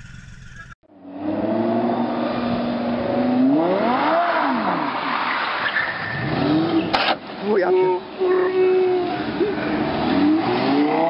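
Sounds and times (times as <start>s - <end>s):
sports car engine revving: 1.0s - 5.3s, 6.2s - 11.0s
tyre squeal: 4.3s - 9.7s.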